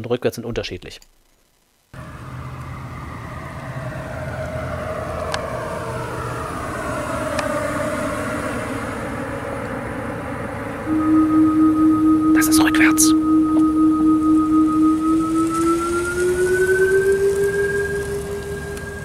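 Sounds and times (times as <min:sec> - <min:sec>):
synthetic hum with falling whine: 0:00.4 - 0:19.0
low thrum: 0:10.8 - 0:19.0.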